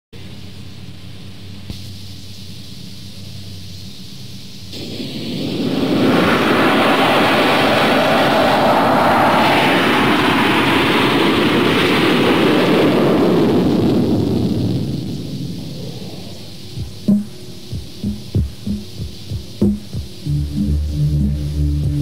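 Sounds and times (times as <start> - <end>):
jet engines roaring: 4.7 - 22.0.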